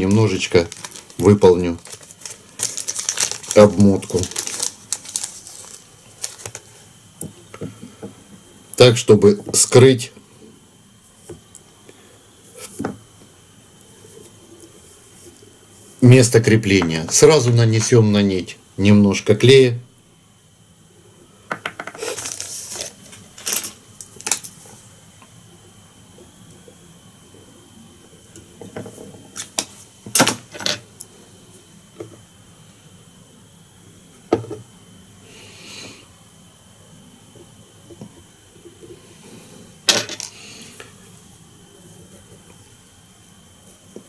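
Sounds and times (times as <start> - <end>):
hands rustling tools: 0.0 - 6.9, 21.8 - 24.7.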